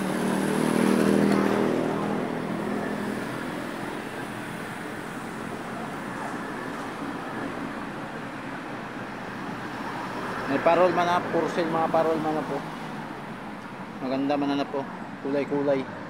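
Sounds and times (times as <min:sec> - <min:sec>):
vehicle engine passing by: 0:00.0 - 0:05.2
road traffic noise: 0:00.0 - 0:16.0.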